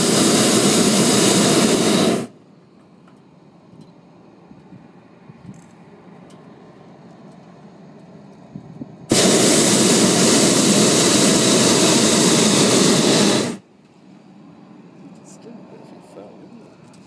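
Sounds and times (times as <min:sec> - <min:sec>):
propane burner blast: 0:00.0 - 0:02.4, 0:09.0 - 0:13.7.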